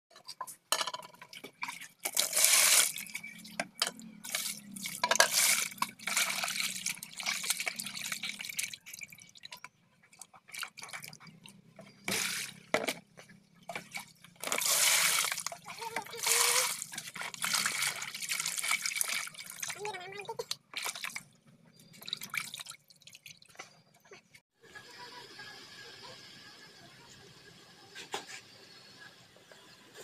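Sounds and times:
water splashing and sloshing: 0.2 - 24.3.

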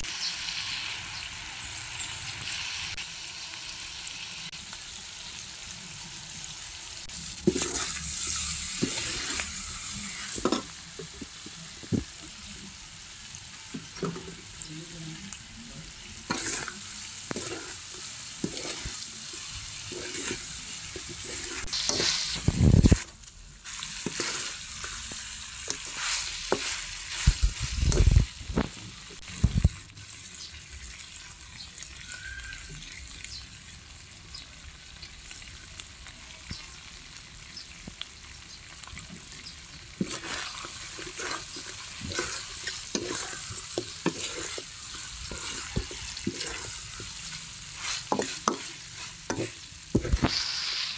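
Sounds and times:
food sizzling in a wok: 0.0 - 50.9
spatula scraping a pan: 7.2 - 12.1, 16.2 - 28.7, 40.0 - 50.9.

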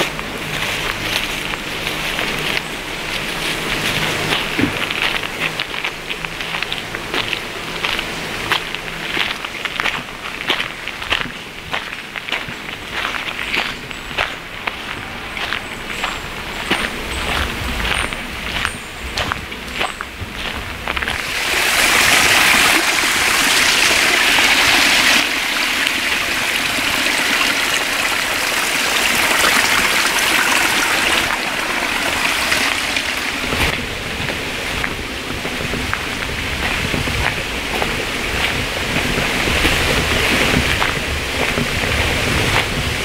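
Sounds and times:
running water: 21.0 - 42.9.

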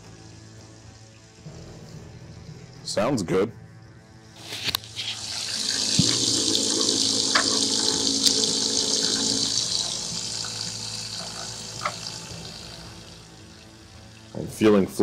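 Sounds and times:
coolant pump hum: 4.7 - 15.0
water rushing and gurgling: 5.0 - 14.2.

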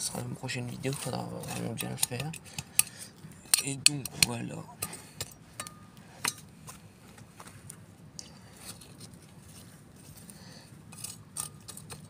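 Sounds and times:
trowel scraping soil: 0.0 - 5.2, 8.5 - 12.0.

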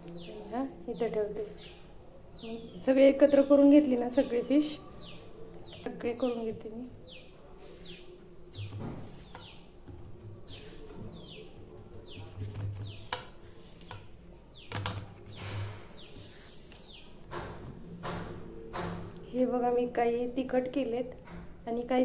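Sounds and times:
bird chirping: 0.0 - 13.8, 14.4 - 17.3.

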